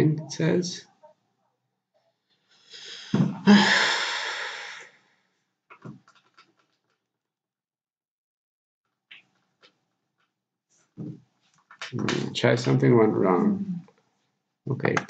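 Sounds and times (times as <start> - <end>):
man breathing heavily: 2.5 - 5.0.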